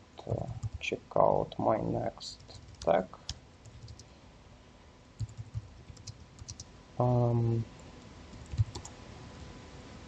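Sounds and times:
keyboard typing: 0.4 - 0.8, 2.4 - 4.0, 5.2 - 6.7, 8.3 - 9.0.

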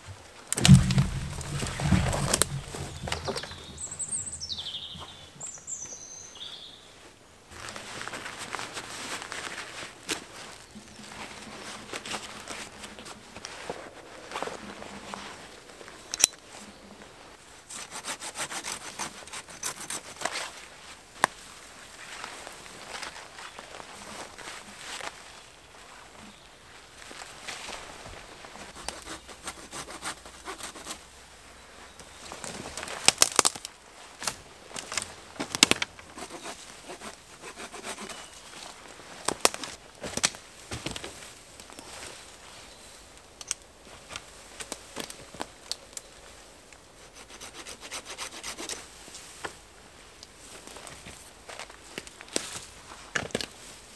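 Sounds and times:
conifer branches rustling and scraping: 0.0 - 53.9
foliage rustling: 0.4 - 5.7
twigs snapping and cracking: 32.4 - 36.0, 39.2 - 41.9.

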